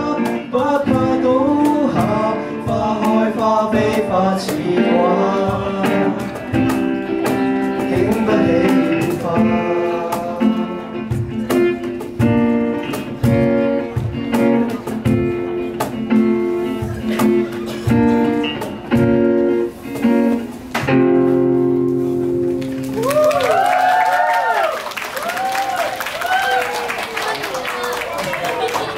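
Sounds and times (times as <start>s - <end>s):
acoustic guitar strumming chords: 0.0s - 22.9s.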